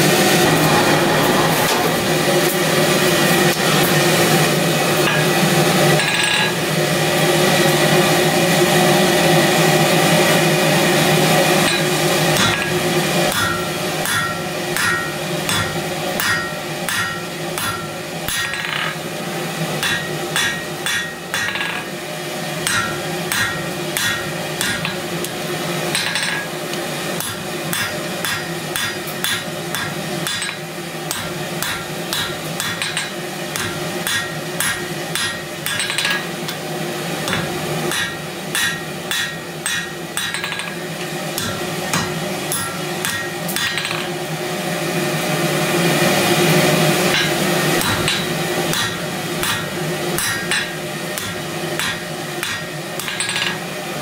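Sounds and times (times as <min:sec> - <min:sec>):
hammer striking hot steel on anvil: 0:05.0 - 0:06.6, 0:11.6 - 0:19.1, 0:19.7 - 0:44.3, 0:47.0 - 0:53.8.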